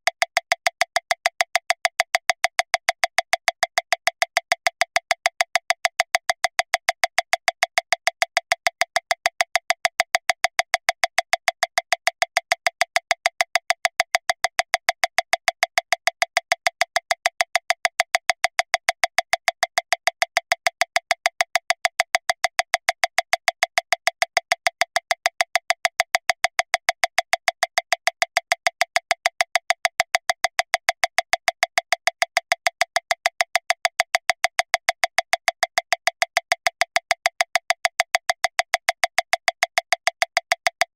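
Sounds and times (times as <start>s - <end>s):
metronome clicking fast: 0.2s - 40.9s.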